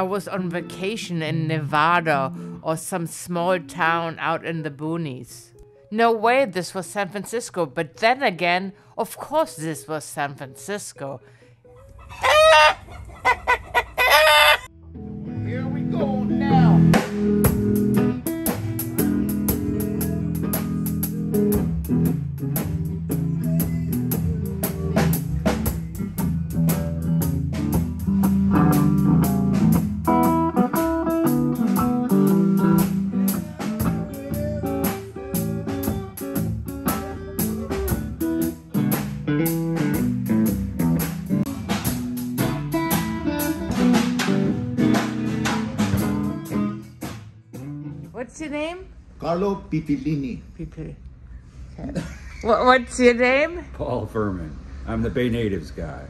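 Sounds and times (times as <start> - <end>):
electric guitar playing: 0.0 - 2.7, 14.7 - 48.2
drum kit steady beat: 16.7 - 48.0.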